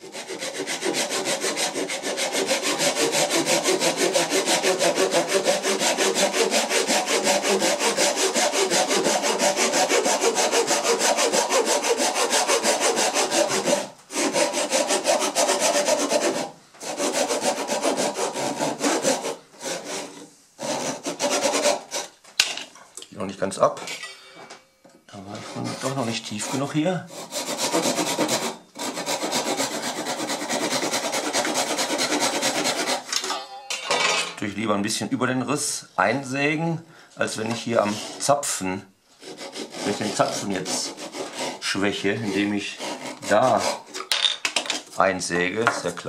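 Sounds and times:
handsaw cutting wood: 0:00.0 - 0:22.1, 0:25.3 - 0:33.1, 0:37.5 - 0:38.4, 0:39.2 - 0:44.0.

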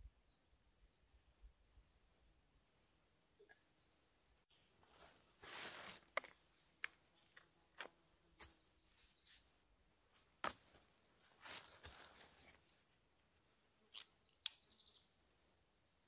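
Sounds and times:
faint birdsong: 0:00.0 - 0:16.0
fabric rustling: 0:04.8 - 0:06.1, 0:10.7 - 0:12.7.

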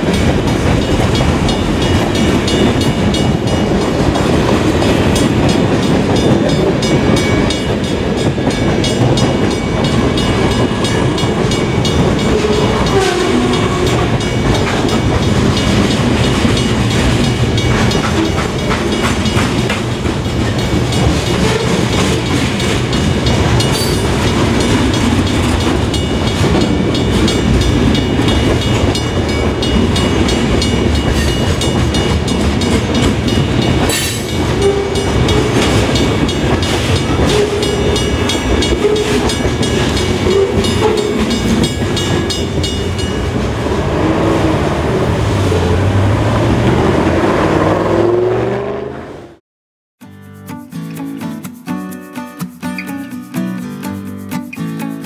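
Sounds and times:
freight car wheels clacking: 0:00.0 - 0:43.6
crossing bell ringing: 0:00.0 - 0:46.9.

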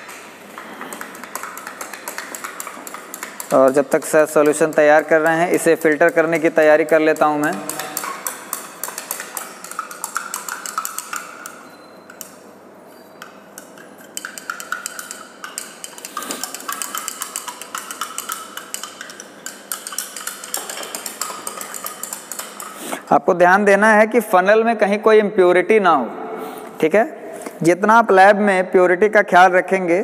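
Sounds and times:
glass rod clinking in beaker: 0:07.4 - 0:12.3, 0:13.6 - 0:22.8.

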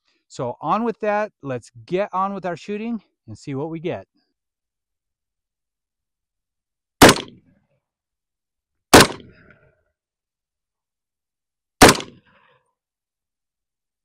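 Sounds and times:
rifle shots with echo: 0:07.0 - 0:07.4, 0:08.9 - 0:09.5, 0:11.8 - 0:12.2.

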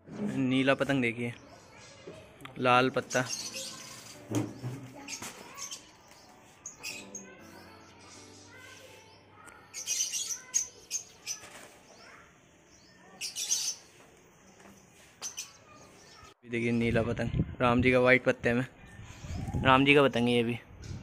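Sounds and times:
birds chirping: 0:00.3 - 0:17.0.

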